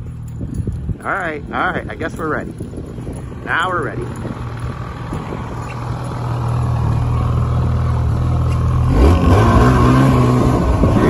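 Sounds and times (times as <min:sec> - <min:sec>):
snowmobile engine revving: 0:06.7 - 0:11.0.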